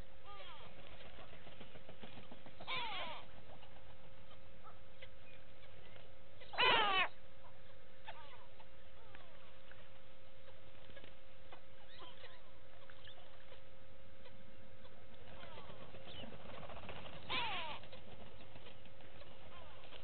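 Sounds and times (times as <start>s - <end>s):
small birds chirping: 0.0s - 20.0s
steady hum and hiss: 0.0s - 20.0s
bird nasal call: 6.4s - 7.2s.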